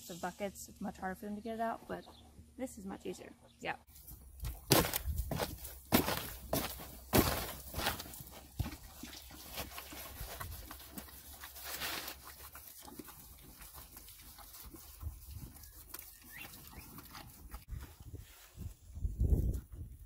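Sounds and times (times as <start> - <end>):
horse crunching pellets: 3.9 - 18.3.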